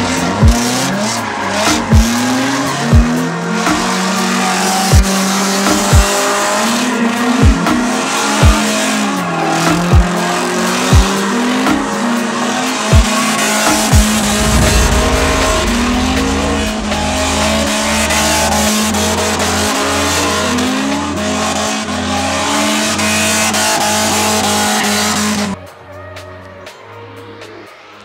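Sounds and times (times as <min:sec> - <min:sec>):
car engines revving: 0:00.0 - 0:25.6
sharp bang: 0:13.7 - 0:19.9.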